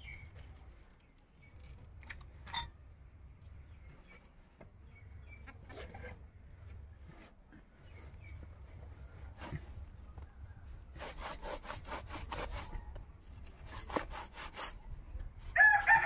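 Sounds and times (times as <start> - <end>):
knife blade scraping ground: 5.6 - 8.3, 10.8 - 14.9.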